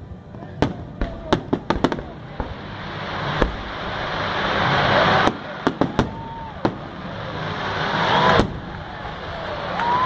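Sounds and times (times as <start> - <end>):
steady rushing noise: 0.0 - 10.0
firework shells bursting: 0.6 - 10.0.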